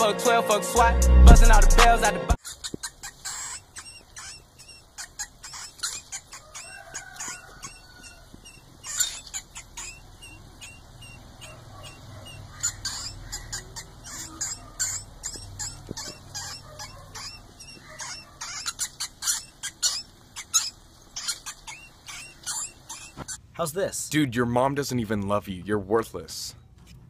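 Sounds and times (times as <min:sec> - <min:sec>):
mouse squeaking: 0:02.4 - 0:23.4.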